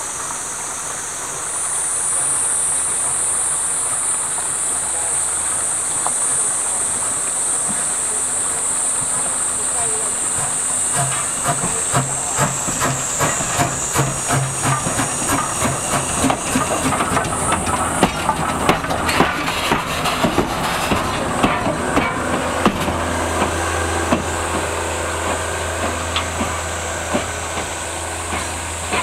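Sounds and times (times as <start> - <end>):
steady high hiss: 0.0 - 18.3
locomotive exhaust chuffs: 0.0 - 29.0.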